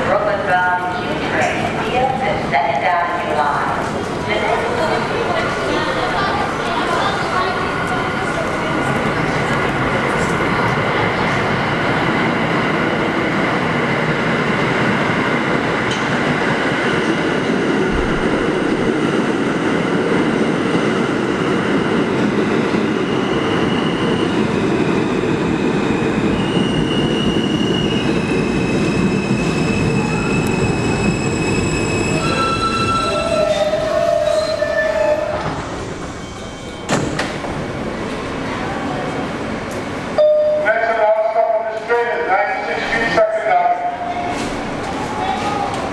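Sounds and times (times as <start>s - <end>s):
subway train wheels rumbling: 0.0s - 45.9s
train brakes squealing: 26.3s - 37.0s.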